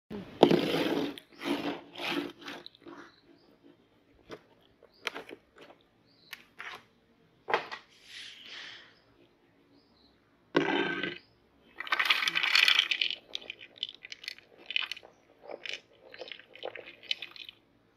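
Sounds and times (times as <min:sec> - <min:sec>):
popcorn rustling: 0:11.7 - 0:17.7.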